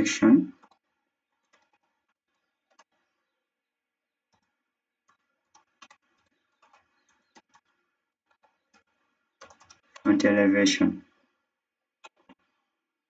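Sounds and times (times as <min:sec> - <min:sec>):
soft keyboard keystrokes: 0:01.4 - 0:03.1, 0:04.3 - 0:07.7, 0:08.3 - 0:10.1.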